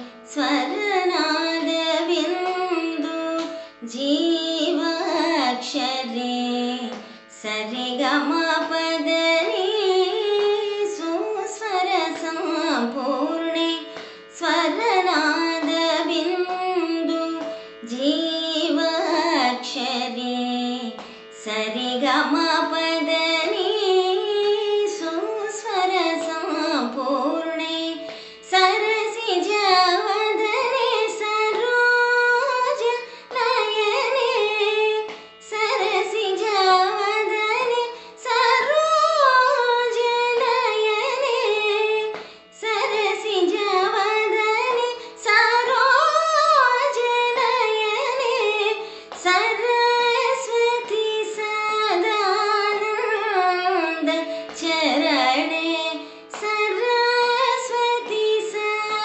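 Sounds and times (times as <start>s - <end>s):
woman singing: 0.0s - 59.0s.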